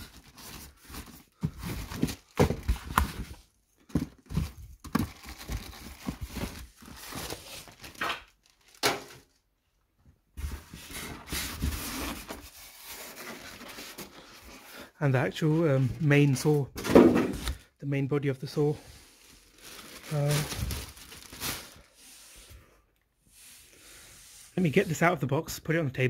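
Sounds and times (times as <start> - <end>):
plastic bags rustling: 0.0 - 9.5, 18.4 - 22.0.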